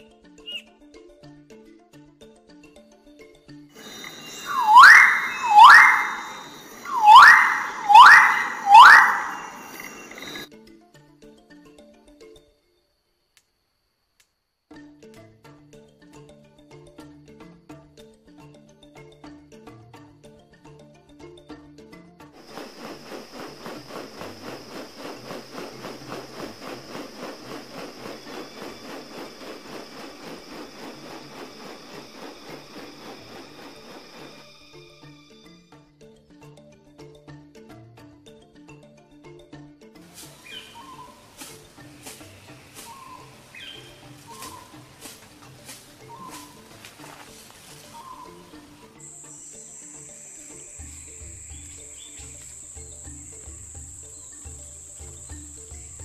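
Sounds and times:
bird calling rising whistles: 0:00.4 - 0:00.6, 0:03.8 - 0:10.5, 0:22.4 - 0:34.9, 0:40.3 - 0:46.8, 0:47.7 - 0:56.0.

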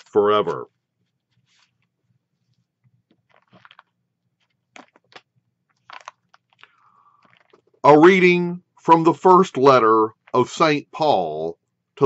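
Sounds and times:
faint rustles and clicks: 0:00.0 - 0:07.8.

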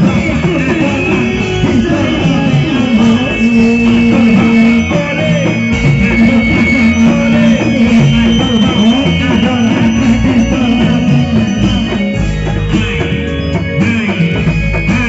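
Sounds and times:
traditional ensemble music: 0:00.0 - 0:15.0.

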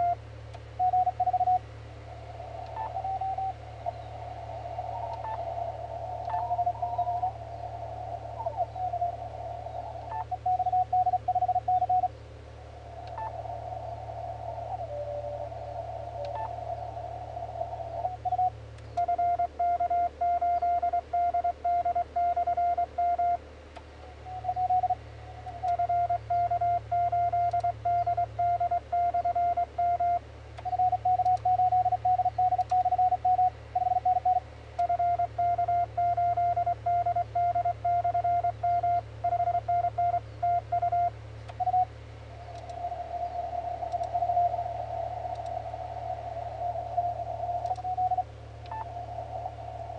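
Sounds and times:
steady low hum: 0:00.0 - 0:49.9
morse code tones: 0:00.8 - 0:01.6, 0:10.0 - 0:12.1, 0:18.0 - 0:23.4, 0:24.2 - 0:41.9
radio band noise: 0:00.8 - 0:20.2, 0:40.6 - 0:49.9.

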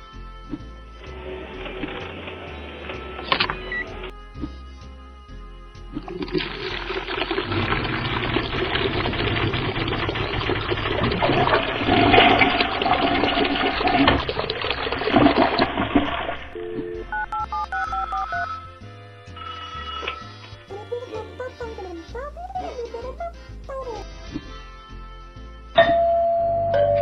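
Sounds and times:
backing music: 0:00.0 - 0:08.4, 0:16.5 - 0:26.2
toilet flushing: 0:06.2 - 0:16.6
telephone ringing tones: 0:16.5 - 0:18.7.

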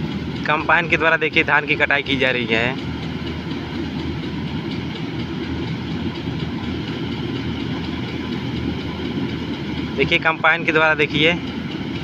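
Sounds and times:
combine harvester rumbling and rattling: 0:00.0 - 0:12.0.

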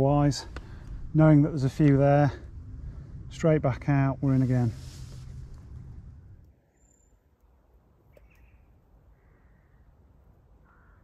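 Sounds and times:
faint low rumble: 0:00.0 - 0:07.1
distant calls: 0:10.6 - 0:11.0.

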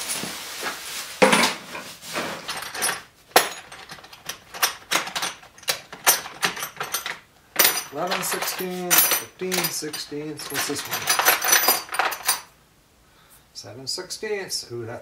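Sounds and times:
small hard parts clinking: 0:02.3 - 0:12.5.

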